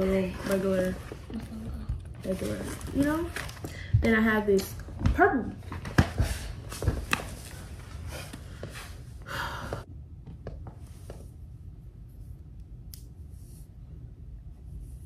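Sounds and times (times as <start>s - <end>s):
paper rustling: 0.0s - 3.8s.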